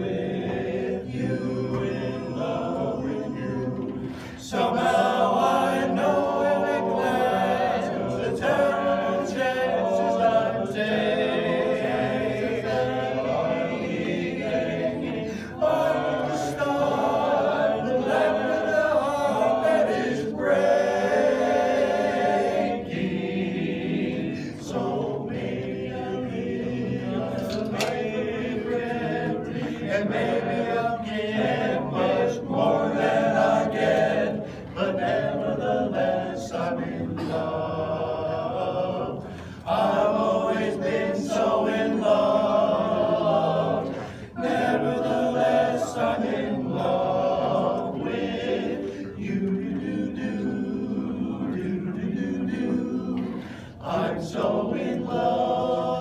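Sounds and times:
men's chorus singing in harmony: 0.0s - 56.0s.

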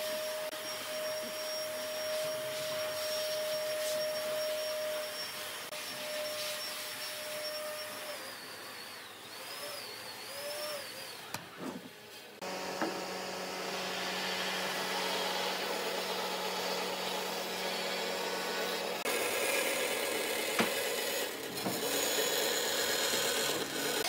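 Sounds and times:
band saw cutting wood: 0.0s - 24.0s
faint wavering whistle tone: 0.2s - 11.3s.

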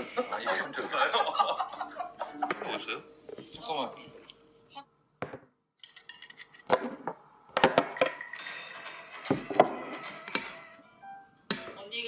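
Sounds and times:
tableware clinking and knocking: 5.2s - 10.8s.

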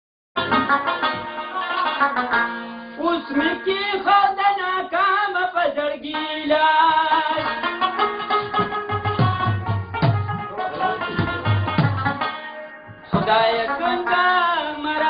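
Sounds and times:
rabab music: 0.4s - 15.0s
person singing: 3.0s - 7.7s, 13.0s - 15.0s.

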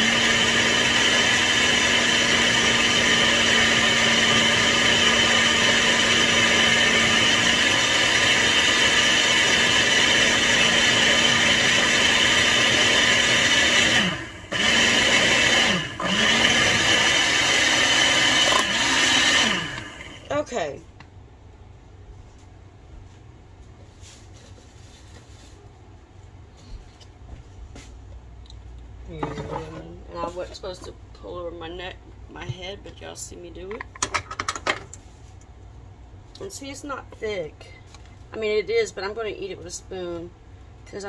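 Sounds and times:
blender motor running: 0.0s - 20.3s.

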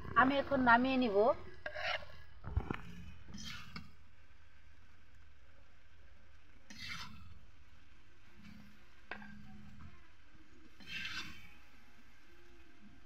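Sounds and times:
low steady hum: 0.0s - 13.0s
metal spoon scraping metal pan: 1.6s - 2.2s, 3.3s - 3.8s, 6.7s - 7.3s, 10.8s - 11.6s.

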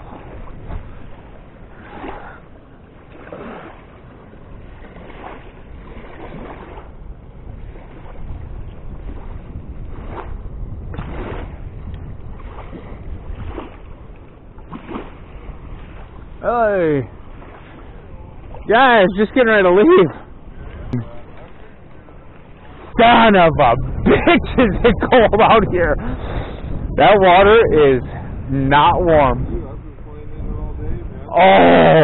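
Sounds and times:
river water rushing: 0.0s - 7.0s, 13.4s - 25.4s
wind buffeting microphone: 0.0s - 32.0s.

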